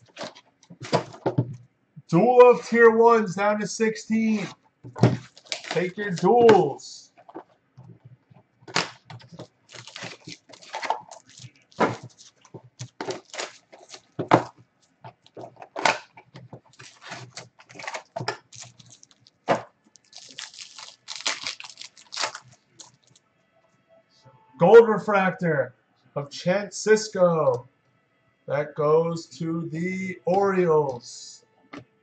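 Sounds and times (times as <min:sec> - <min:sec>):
foil wrapper tearing and crinkling: 0:00.0 - 0:01.2, 0:05.2 - 0:06.3, 0:08.7 - 0:16.0, 0:16.6 - 0:23.2.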